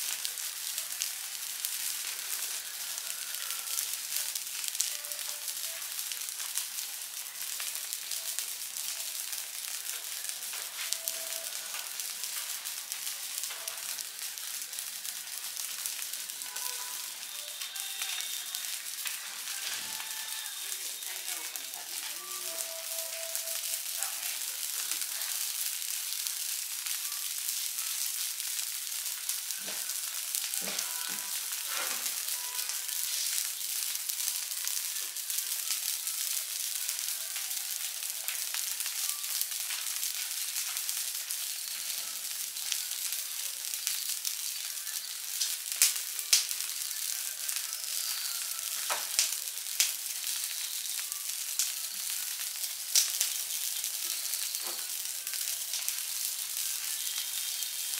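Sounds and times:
fire crackling: 0.0 - 57.9
sharp pops and cracks: 23.5 - 43.1, 43.7 - 46.9, 48.8 - 57.4.

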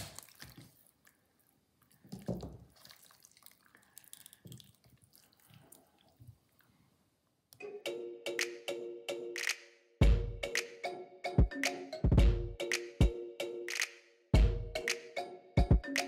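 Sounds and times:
wet squishy cutting of raw meat: 0.0 - 1.2, 2.1 - 6.1
music: 7.6 - 16.0.

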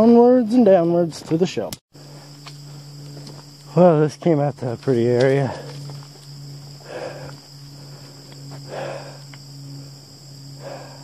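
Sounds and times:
crickets chirring: 0.0 - 11.0
low steady hum: 0.0 - 11.0.

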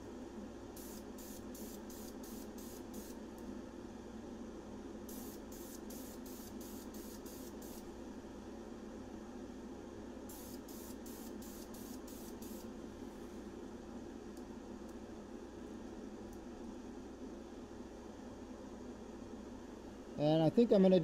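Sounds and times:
spray can bursts: 0.8 - 3.2, 10.3 - 12.6.

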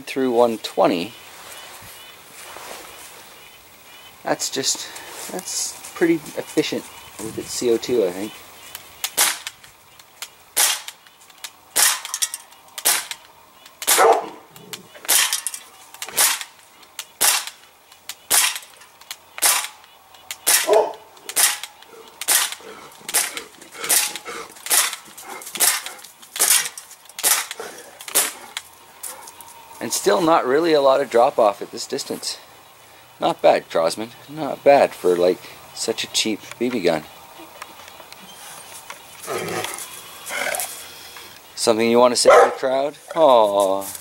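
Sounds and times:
bb pistol shots popping: 9.0 - 9.6, 10.2 - 11.0, 11.7 - 28.6
bbs striking metal cans: 9.0 - 28.6.

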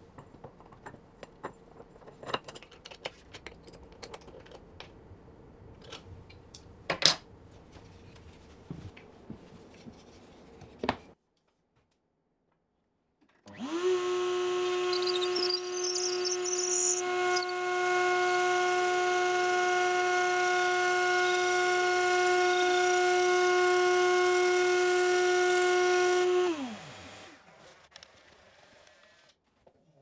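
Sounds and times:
wood router whining: 13.4 - 29.4.

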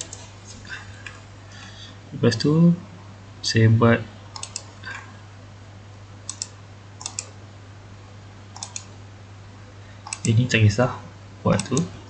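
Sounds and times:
steady low hum: 0.0 - 12.0
computer mouse clicking: 4.3 - 5.0, 6.3 - 7.3, 8.6 - 8.9, 10.0 - 10.4, 11.6 - 11.9.

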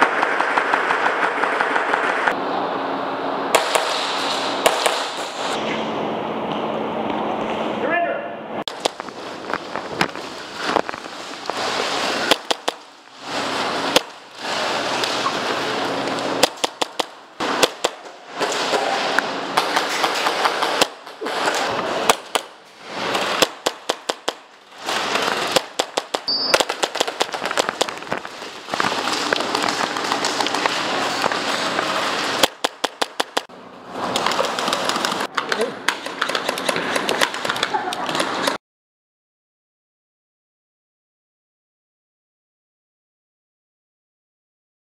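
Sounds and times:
steady noise: 0.0 - 35.3.

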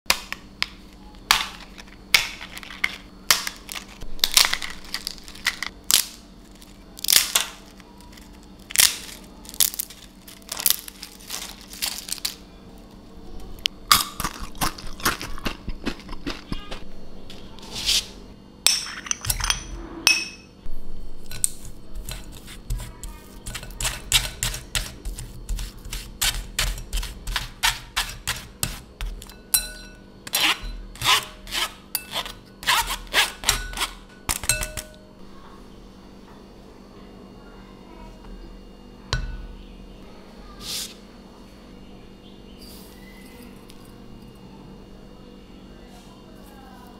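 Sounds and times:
crisp crepe layers cracking: 3.6 - 12.9
spoon scraping a metal sieve: 21.3 - 34.9.

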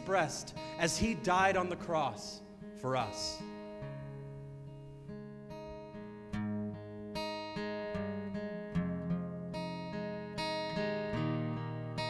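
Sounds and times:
acoustic guitar chords: 0.0 - 12.0.

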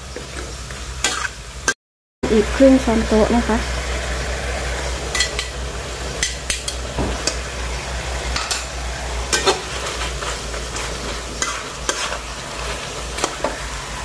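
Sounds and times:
meat sizzling: 0.0 - 14.0
metal spatula scraping a wok: 1.0 - 1.4, 3.9 - 14.0.

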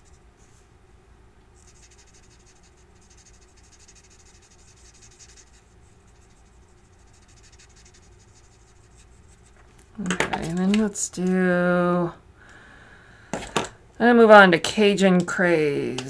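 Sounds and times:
marker scratching on cardstock: 1.6 - 9.6.

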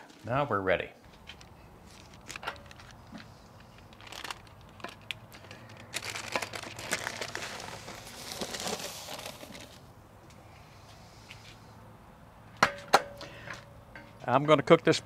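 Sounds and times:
parchment paper crinkling: 1.4 - 9.8.

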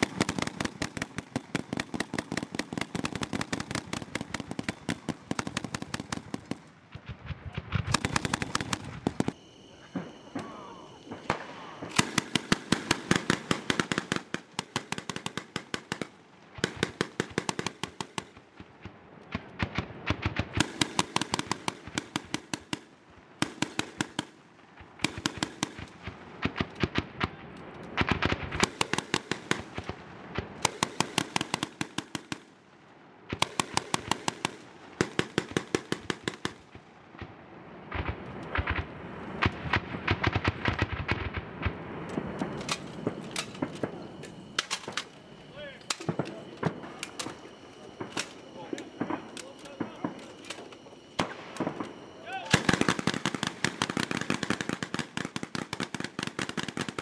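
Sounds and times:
rapid gunfire bursts: 0.0 - 9.4, 11.1 - 18.9, 19.5 - 27.3, 28.0 - 32.5, 33.3 - 36.8, 37.9 - 41.8, 52.4 - 57.0.

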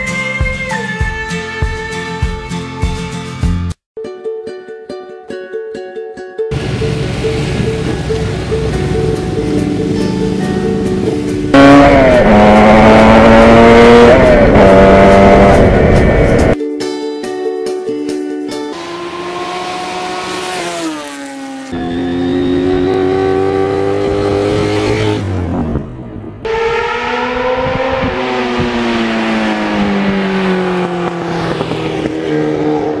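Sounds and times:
background music with a beat: 0.0 - 3.8, 15.0 - 18.8
motorcycle engine running: 6.5 - 16.6.

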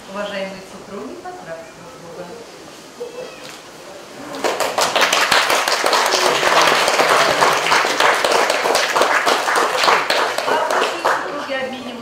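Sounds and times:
crowd applauding: 4.2 - 11.5.

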